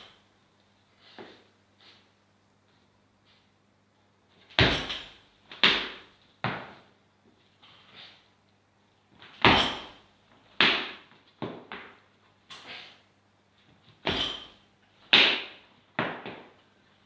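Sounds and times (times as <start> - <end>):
weights thudding on gym floor: 4.5 - 6.8, 9.4 - 10.0, 14.0 - 16.5.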